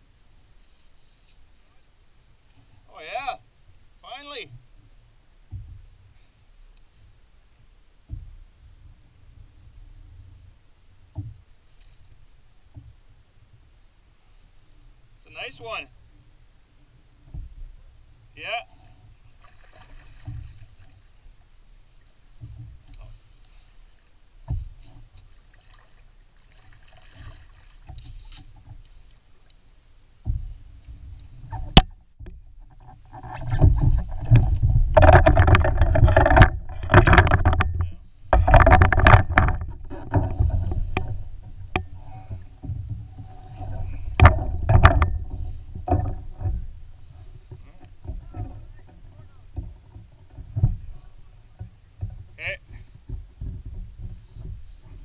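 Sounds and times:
fish splashing: 0:19.4 - 0:21.0, 0:25.3 - 0:28.0
knocking against kayak hull: 0:30.2 - 0:55.0.

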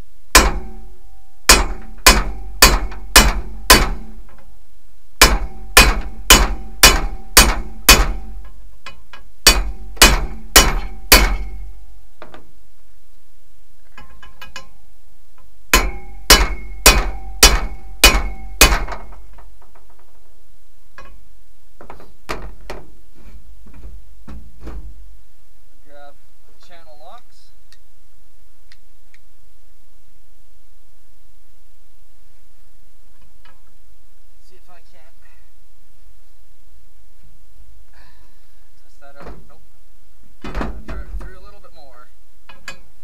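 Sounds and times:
hammer striking steel: 0:00.3 - 0:04.4, 0:05.2 - 0:12.4, 0:15.7 - 0:19.2.

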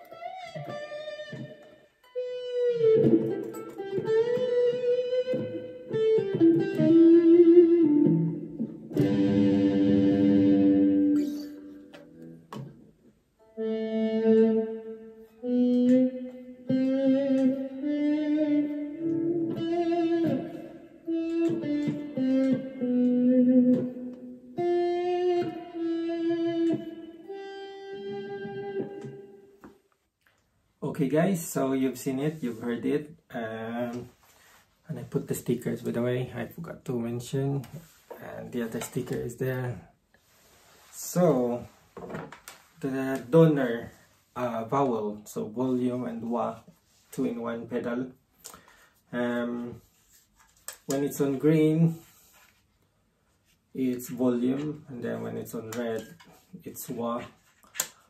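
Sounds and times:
electric guitar melodic lines: 0:00.0 - 0:29.7
strummed guitar chord: 0:05.4 - 0:12.4, 0:13.5 - 0:29.4.

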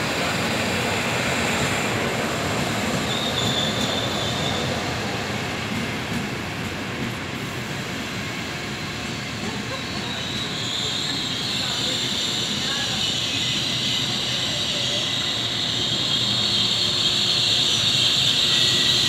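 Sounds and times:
train rolling on rails: 0:00.0 - 0:19.0
high-pitched wheel squeal: 0:03.0 - 0:04.9, 0:09.8 - 0:19.0.

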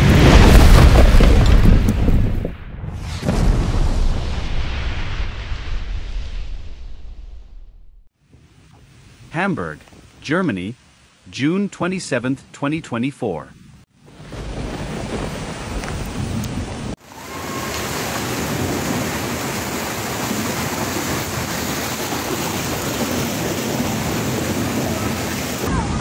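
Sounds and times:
heavy rain pouring: 0:14.0 - 0:26.0.

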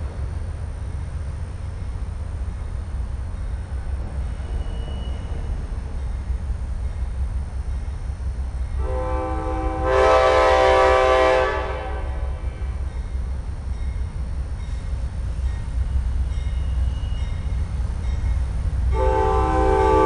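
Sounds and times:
locomotive air horn blast: 0:08.8 - 0:12.6, 0:18.9 - 0:20.0.

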